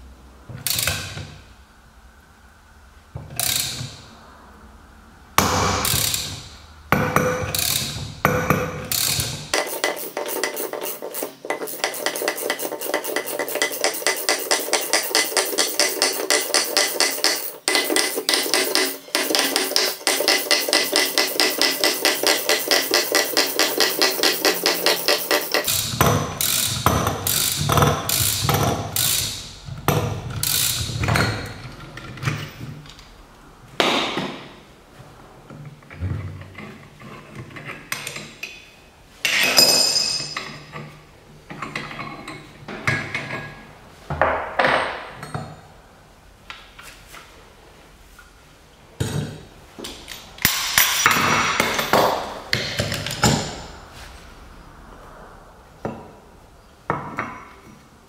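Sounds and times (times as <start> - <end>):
metal tool clicks and clanks: 3.4 - 3.9, 5.4 - 6.4, 7.2 - 29.4, 49.8 - 53.6.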